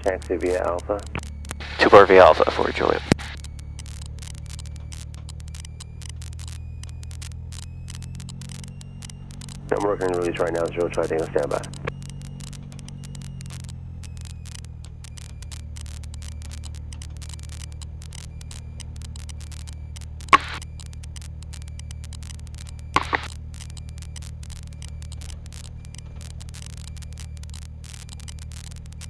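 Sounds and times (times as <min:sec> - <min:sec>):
propeller plane engine drone: 0:00.0 - 0:29.0
static crackle: 0:00.0 - 0:29.0.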